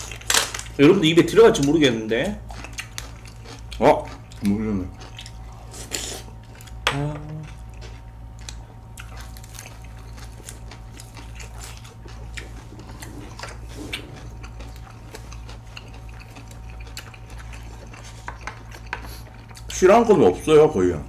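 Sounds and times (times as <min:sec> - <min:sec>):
close-up chewing: 0:01.4 - 0:19.8
person humming mm: 0:06.9 - 0:07.5.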